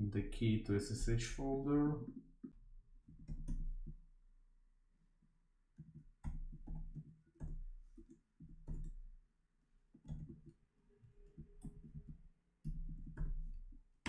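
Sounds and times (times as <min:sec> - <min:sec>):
keyboard typing: 0:03.0 - 0:04.0, 0:05.8 - 0:09.1, 0:10.0 - 0:13.7.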